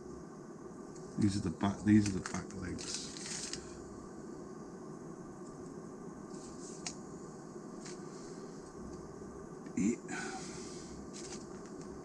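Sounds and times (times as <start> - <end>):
paper sheet rustling: 1.9 - 3.6, 11.2 - 11.6.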